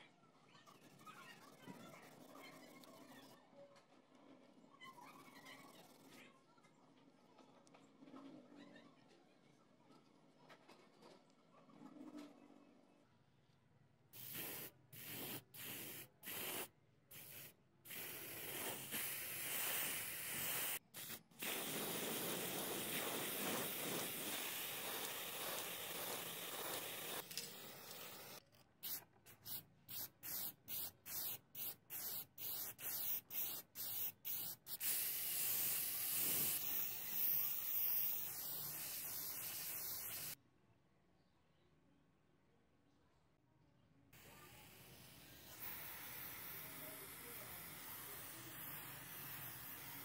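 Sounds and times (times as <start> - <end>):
spray paint can hissing: 14.2 - 40.4, 44.4 - 50.0.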